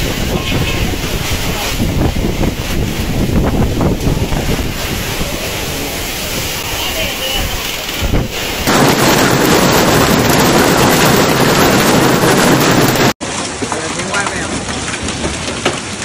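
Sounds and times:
storm wind: 0.0s - 13.5s
driving rain: 0.0s - 16.0s
hailstones striking pavement: 7.0s - 16.0s.

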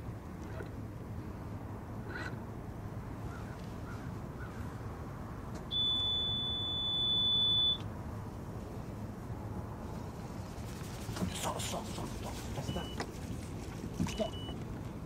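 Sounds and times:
low background hum: 0.0s - 15.0s
high-pitched electronic beep: 5.7s - 7.8s.

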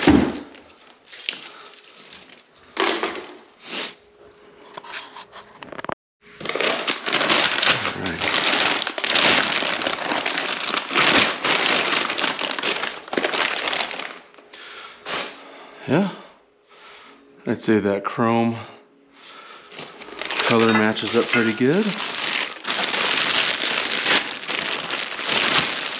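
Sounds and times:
plastic bags crinkling: 0.7s - 2.9s, 6.4s - 14.4s, 19.7s - 25.9s.

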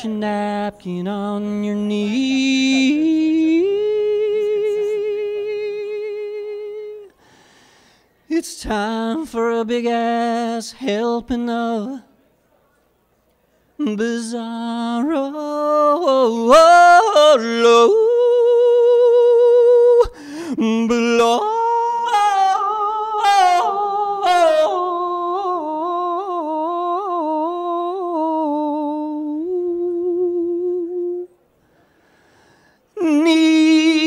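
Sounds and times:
person singing unaccompanied: 0.0s - 7.1s, 13.8s - 31.4s, 33.0s - 34.0s.

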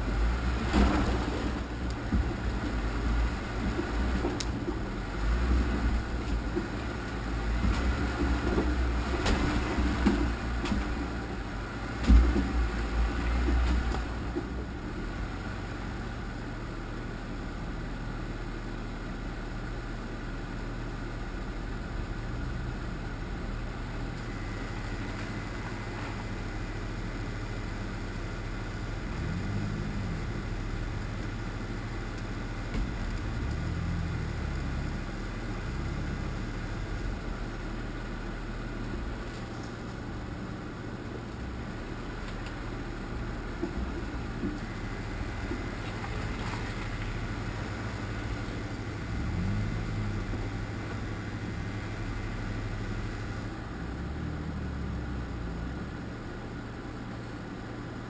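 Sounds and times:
off-road vehicle engine running: 0.0s - 58.0s
vehicle knocking over rocks: 0.1s - 14.9s, 28.8s - 38.0s
engine revving: 28.8s - 32.0s, 32.6s - 37.6s, 44.6s - 56.0s.

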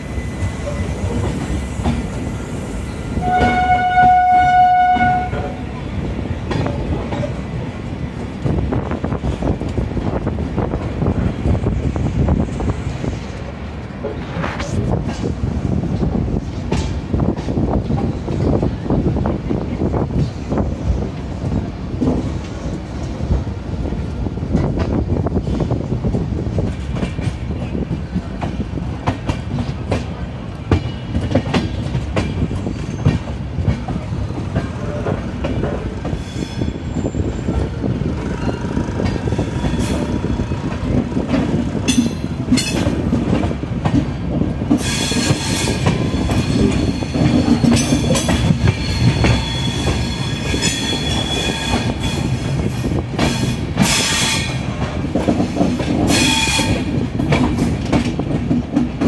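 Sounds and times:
train wheels rumbling on rails: 0.0s - 59.0s
wheel squeal and clatter: 36.1s - 37.8s, 44.8s - 52.5s.

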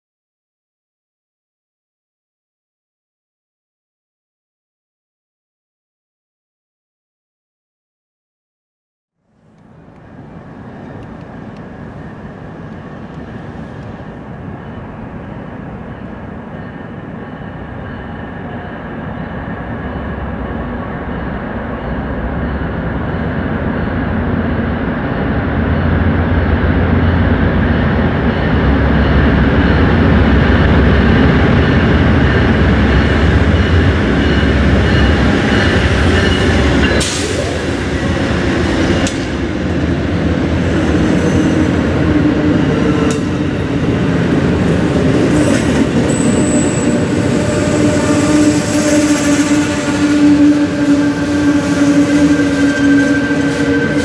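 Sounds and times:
diesel locomotive drone: 9.2s - 54.0s.

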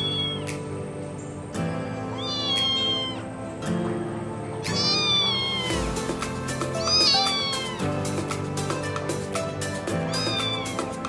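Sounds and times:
kitten meowing: 0.0s - 0.6s, 2.1s - 3.3s, 4.7s - 8.0s, 10.1s - 11.0s
background music: 0.0s - 11.0s.

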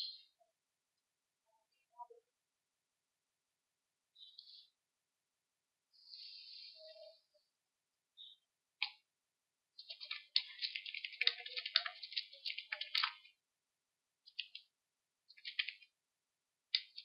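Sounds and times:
computer keyboard typing: 9.8s - 13.3s, 14.3s - 14.6s, 15.3s - 15.9s.

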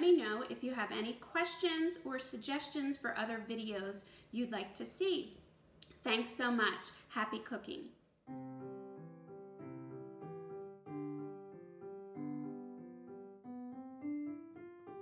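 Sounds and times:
piano music: 8.3s - 15.0s.

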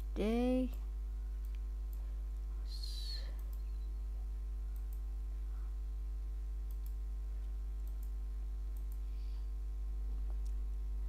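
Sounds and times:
low electrical hum: 0.0s - 11.0s
computer mouse clicks: 3.4s - 3.6s, 4.7s - 5.0s, 6.6s - 7.0s, 7.8s - 9.0s.

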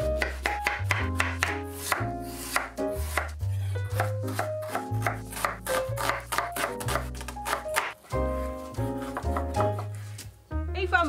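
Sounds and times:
background music: 0.0s - 11.0s
knife chopping on wooden board: 0.2s - 8.0s, 9.0s - 10.0s.

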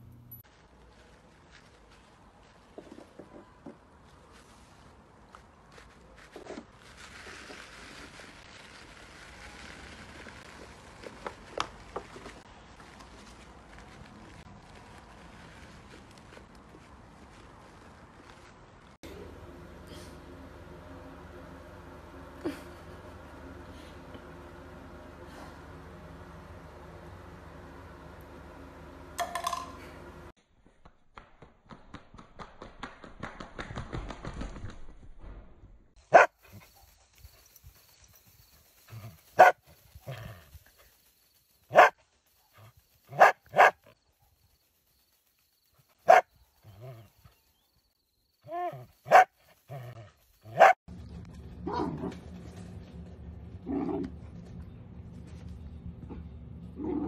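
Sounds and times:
steady low hum: 19.0s - 30.4s, 50.2s - 57.0s
dog barking: 36.1s - 36.3s, 39.4s - 39.6s, 41.7s - 42.0s, 43.1s - 43.9s, 46.0s - 46.3s, 48.6s - 49.3s, 50.5s - 50.8s.

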